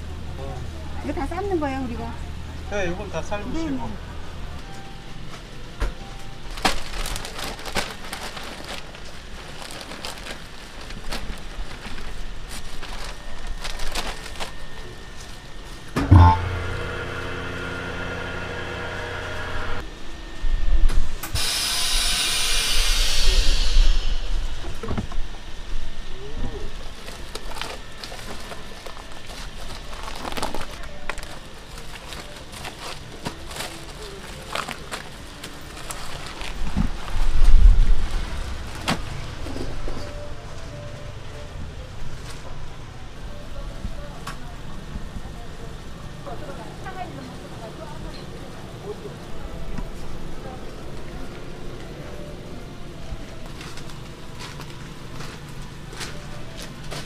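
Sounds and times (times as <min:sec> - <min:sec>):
vacuum pump hum: 0:00.0 - 0:57.0
machine clunk: 0:16.0 - 0:16.7
loud air hiss: 0:21.0 - 0:24.9.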